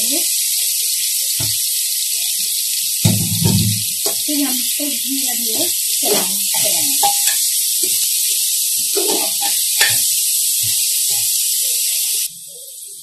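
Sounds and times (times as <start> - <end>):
meat sizzling in hot fat: 0.0 - 13.0
metal spoon scraping pot: 6.0 - 7.4, 8.9 - 10.1.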